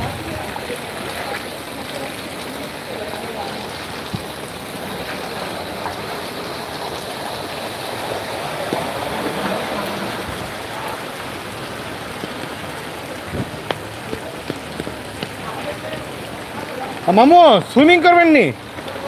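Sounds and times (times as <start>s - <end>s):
rain on flooded street: 0.0s - 19.0s
sharp taps: 12.1s - 15.7s.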